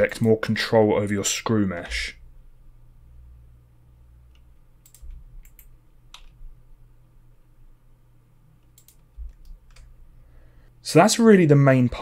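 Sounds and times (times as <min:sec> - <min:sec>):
low steady hum: 0:00.0 - 0:12.0
keyboard and mouse clicks: 0:04.3 - 0:06.4, 0:08.6 - 0:09.9.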